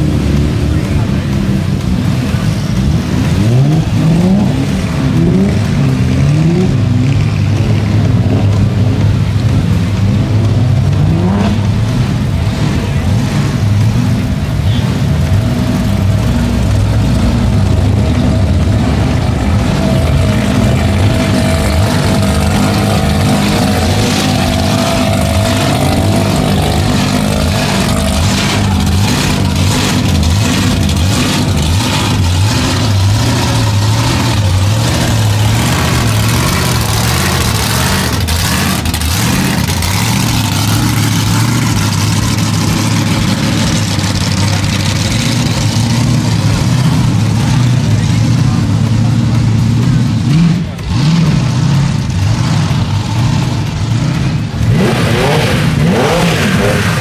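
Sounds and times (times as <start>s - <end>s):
car engine revving: 0.0s - 57.0s
sharp exhaust cracks: 11.6s - 57.0s.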